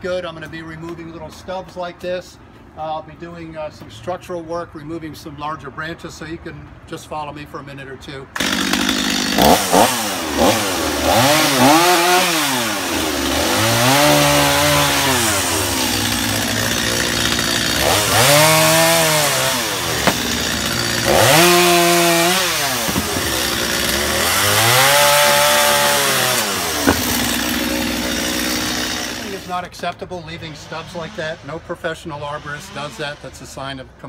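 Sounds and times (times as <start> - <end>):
chainsaw revving: 8.4 - 29.5.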